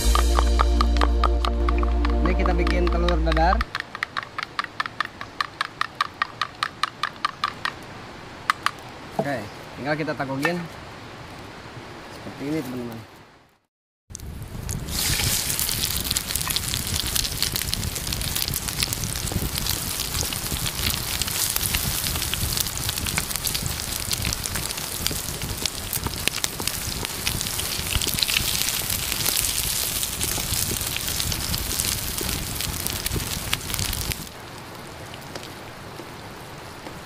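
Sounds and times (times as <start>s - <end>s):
omelette sizzling in pan: 14.2s - 34.4s.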